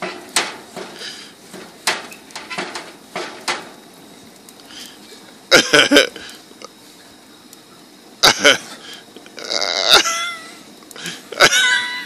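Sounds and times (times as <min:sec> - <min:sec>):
utensil clinking on grill grates: 0:00.0 - 0:03.8.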